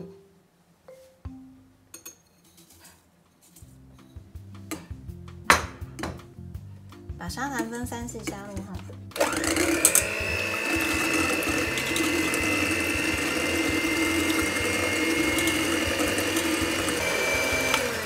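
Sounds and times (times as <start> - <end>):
electric hand mixer whining: 9.2 - 18.0.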